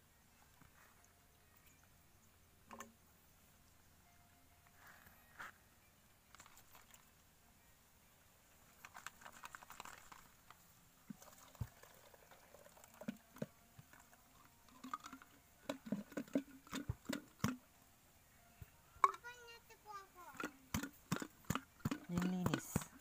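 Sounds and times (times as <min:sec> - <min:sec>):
liquid sloshing: 0:11.1 - 0:13.5
plastic and metal clicks and knocks: 0:20.4 - 0:23.0.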